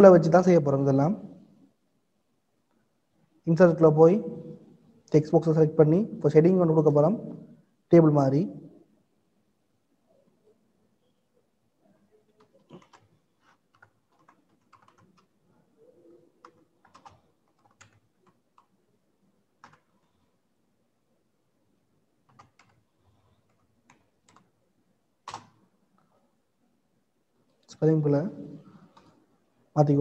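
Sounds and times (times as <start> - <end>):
typing on computer keyboard: 12.3 - 15.4, 16.4 - 18.8, 19.6 - 20.2, 22.2 - 24.6, 25.2 - 25.6, 28.9 - 29.2.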